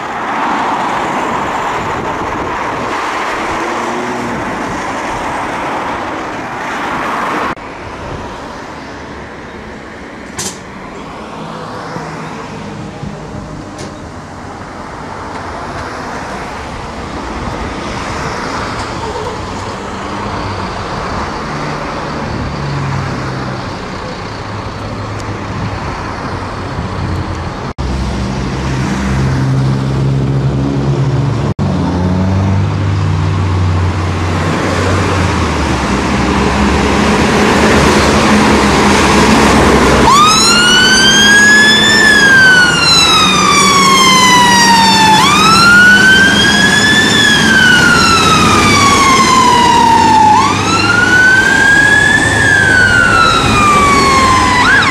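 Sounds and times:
diesel engine pulling away: 10.9 - 54.9
fire engine siren wailing: 34.4 - 54.9.

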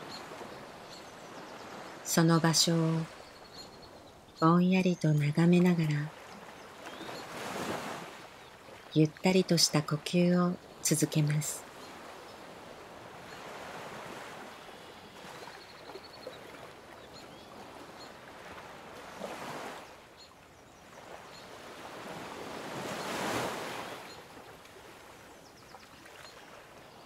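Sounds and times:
ocean waves washing in: 5.5 - 20.2, 20.9 - 27.0.

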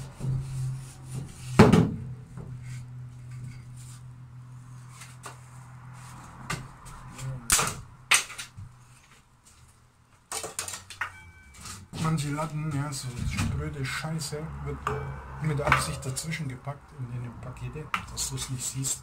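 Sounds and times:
steady low hum: 12.1 - 18.8.

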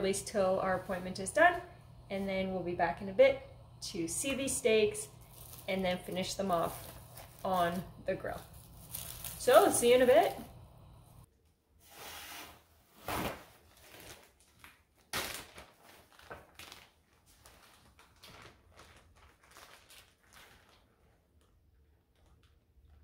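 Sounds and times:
plastic bag crinkling: 5.0 - 10.5, 13.7 - 23.0.

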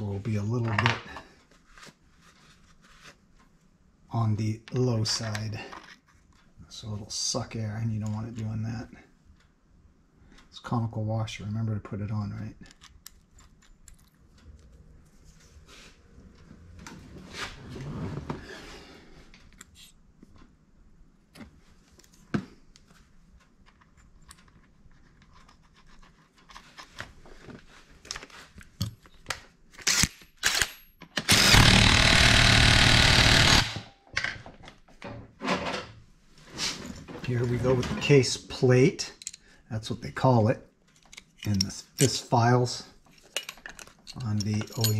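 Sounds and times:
small metal clicks and clatter: 12.6 - 14.8, 23.6 - 27.0, 40.9 - 42.1, 43.0 - 44.9
power tool running: 31.2 - 33.9.

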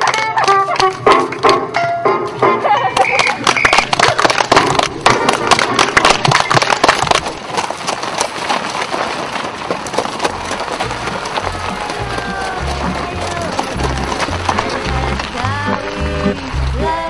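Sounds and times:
audience applauding: 0.0 - 1.0, 3.0 - 7.4, 10.3 - 17.0.

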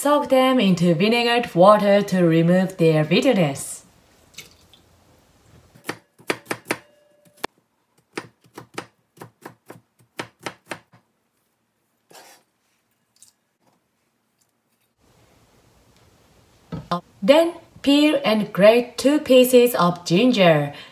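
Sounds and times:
knife chopping on plastic board: 8.0 - 11.0.

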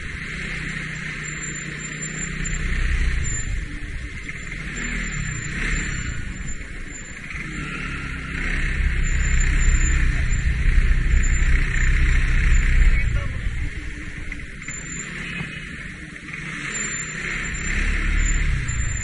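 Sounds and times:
motor scooter engine: 0.0 - 19.0.

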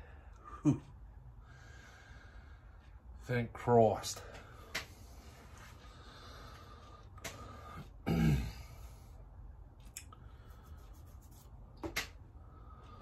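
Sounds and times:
man clearing his throat: 0.6 - 0.9, 8.0 - 8.7.

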